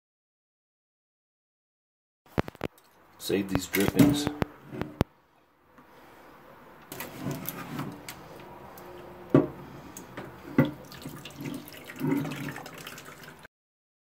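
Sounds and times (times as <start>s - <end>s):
liquid trickling: 9.7s - 13.5s.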